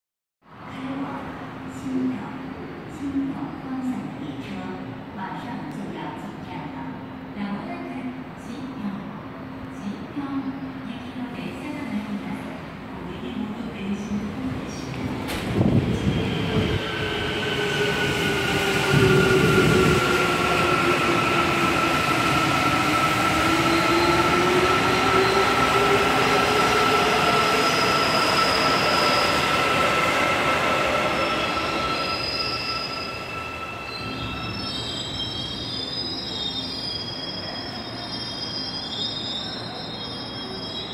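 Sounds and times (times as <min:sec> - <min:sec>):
train wheel and running noise: 0:14.8 - 0:16.1.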